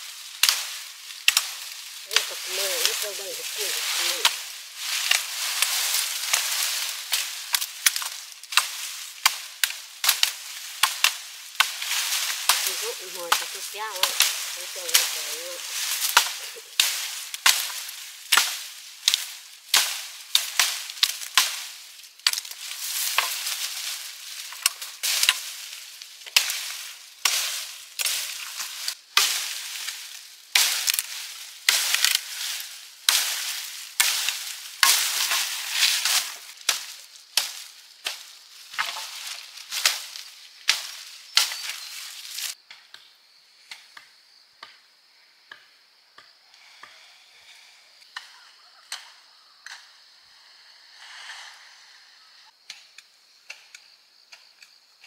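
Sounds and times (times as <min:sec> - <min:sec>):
hissing rustle: 0:00.0 - 0:42.6.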